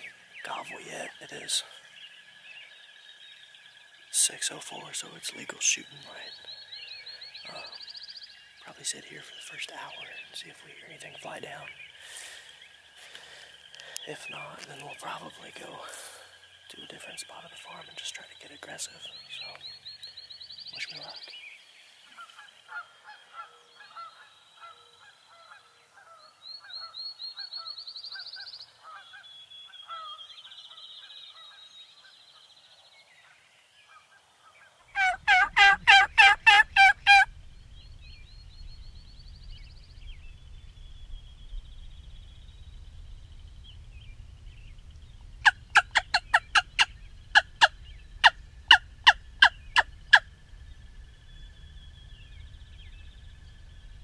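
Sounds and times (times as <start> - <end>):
loud sharp bird calls: 0.0 - 2.7, 3.6 - 42.8, 44.5 - 54.0
songbirds chirping: 0.0 - 54.0
turkey gobble: 35.0 - 37.3, 45.4 - 50.2.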